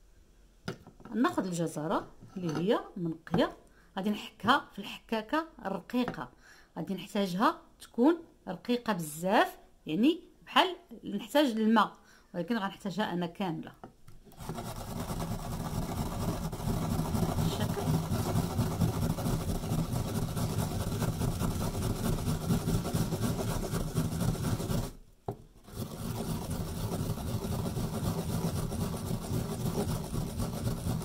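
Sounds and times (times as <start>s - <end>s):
carrot grating on metal grater: 14.3s - 25.0s, 25.6s - 31.0s.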